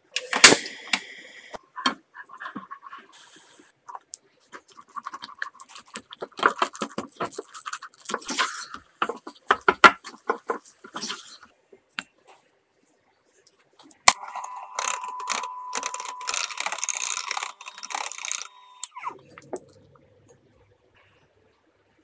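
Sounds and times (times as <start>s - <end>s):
electric hand mixer whining: 14.4s - 18.9s.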